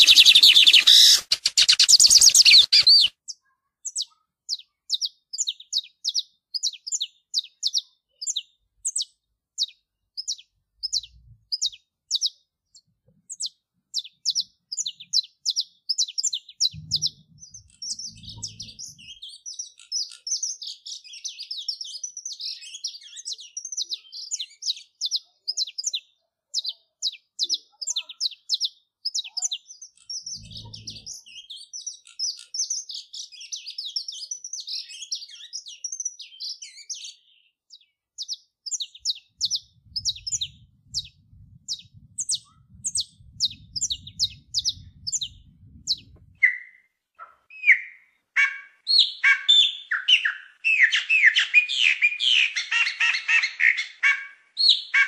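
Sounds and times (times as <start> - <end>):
finch singing: 0.0 - 55.0
low rumble: 16.6 - 19.2, 30.2 - 31.2, 39.1 - 46.4
soft low thumps: 16.7 - 19.0, 39.3 - 46.4.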